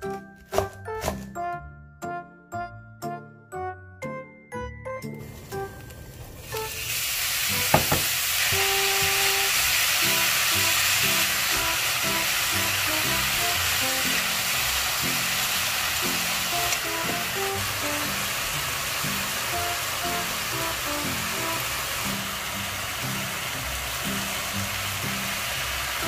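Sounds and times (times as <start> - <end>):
beef sizzling in a dry pan: 5.4 - 26.0
sharp knock: 7.7 - 8.1.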